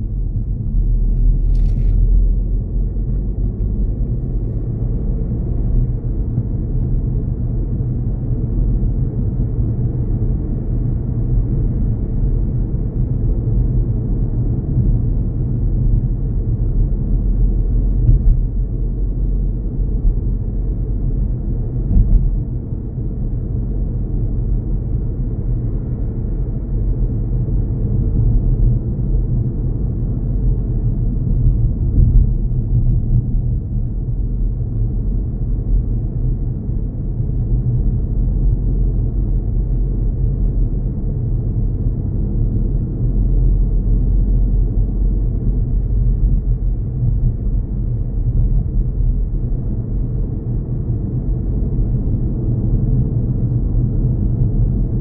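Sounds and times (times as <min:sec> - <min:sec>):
car engine rumble: 0:00.0 - 0:55.0.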